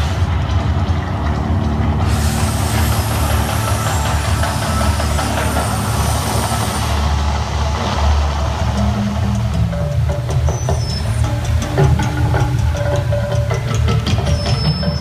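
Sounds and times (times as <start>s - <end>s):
deep rumbling fire roar: 0.0s - 9.7s
high hiss: 2.0s - 15.0s.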